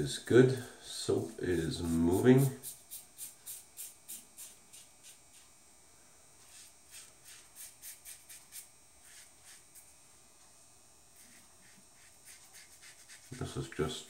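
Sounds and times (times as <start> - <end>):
razor scraping stubble: 1.1 - 5.6, 6.4 - 10.0, 11.2 - 14.0.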